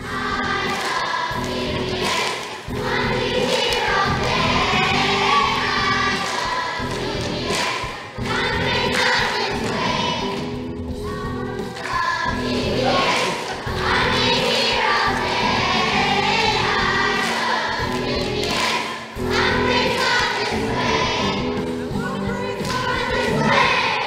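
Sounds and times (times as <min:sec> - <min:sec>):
group of voices singing: 0:00.0 - 0:24.0.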